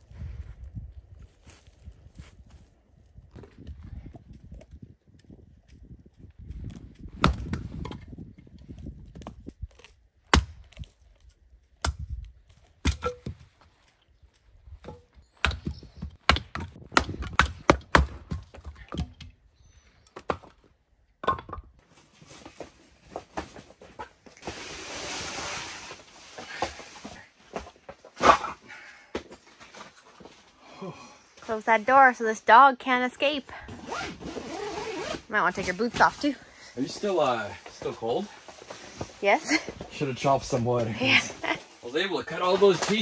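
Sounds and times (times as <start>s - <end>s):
hatchet chopping firewood: 6.7s - 8.2s, 9.7s - 13.6s, 14.8s - 19.4s.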